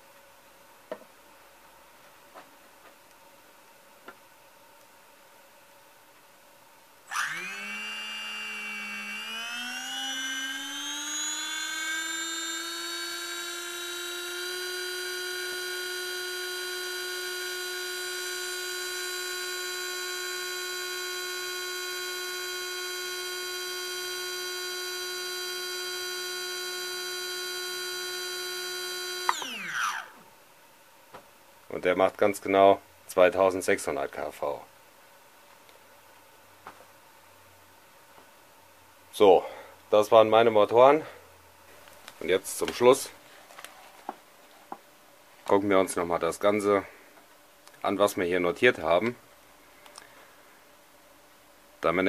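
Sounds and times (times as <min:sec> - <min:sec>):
electric motor whine: 0:07.1 - 0:30.2.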